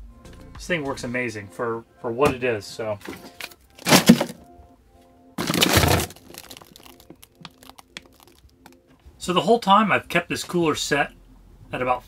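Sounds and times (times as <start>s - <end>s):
faint background music: 0.0s - 12.0s
rough plastic clatter: 3.0s - 4.4s, 5.4s - 6.7s.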